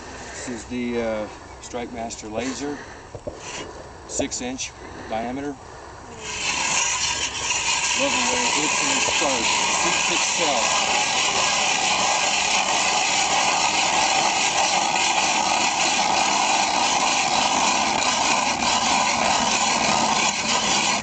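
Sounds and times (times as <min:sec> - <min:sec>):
hand ice auger scraping ice: 0:06.2 - 0:21.0.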